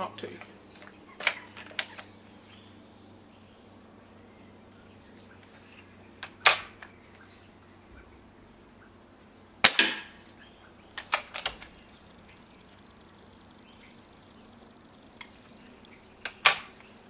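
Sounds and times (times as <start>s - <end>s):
air rifle cocking clicks: 0.4s - 2.2s, 11.0s - 11.8s
rifle barrel snapped shut: 6.2s - 6.9s, 9.6s - 10.2s, 11.0s - 11.7s, 16.2s - 16.7s
air rifle shot: 6.3s - 6.8s, 9.6s - 10.3s.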